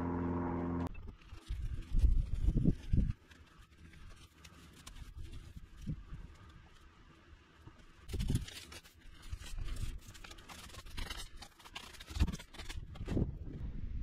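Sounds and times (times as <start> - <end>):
rake scraping dry dirt: 0.8 - 6.8.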